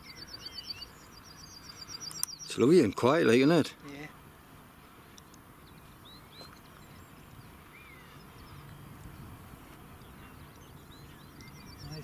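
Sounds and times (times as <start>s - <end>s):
faint bird calls: 5.6s - 12.0s.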